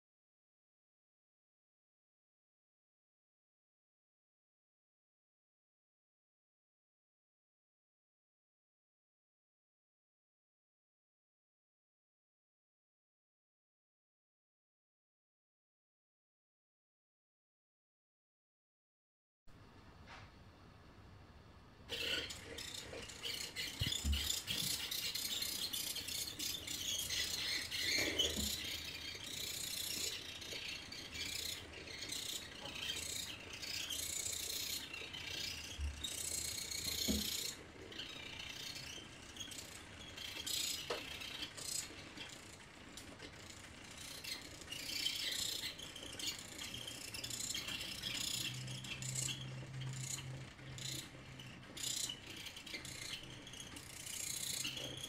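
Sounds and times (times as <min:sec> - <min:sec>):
small motors whining and rattling: 0:21.9 - 0:55.0.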